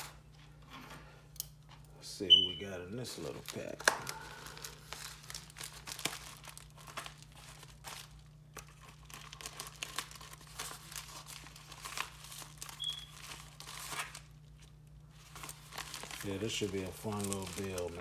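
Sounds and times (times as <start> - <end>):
plastic bag crinkling: 3.0 - 18.0.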